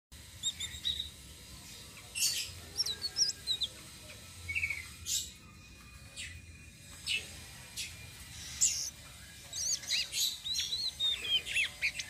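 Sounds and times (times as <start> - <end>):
bird singing whistled notes: 0.4 - 1.2, 7.8 - 12.0.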